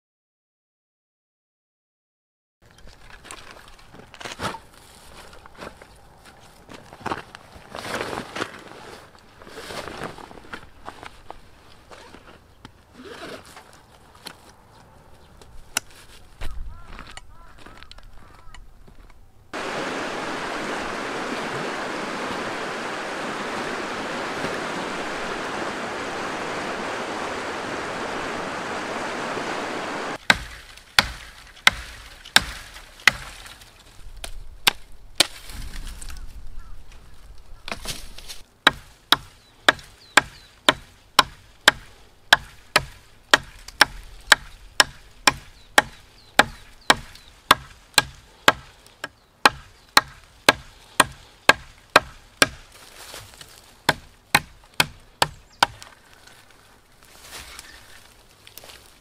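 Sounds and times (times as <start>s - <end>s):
river water rushing: 19.6s - 30.2s
knife chopping wooden branch: 30.2s - 35.6s, 37.7s - 48.7s, 49.4s - 56.0s.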